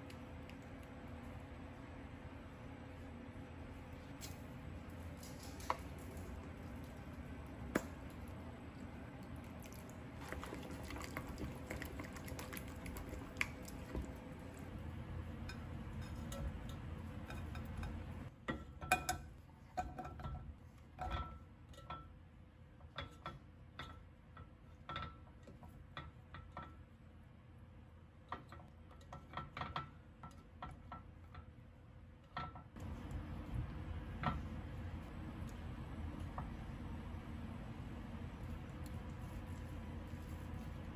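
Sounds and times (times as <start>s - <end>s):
utensils and dishes clinking: 15.4s - 20.4s.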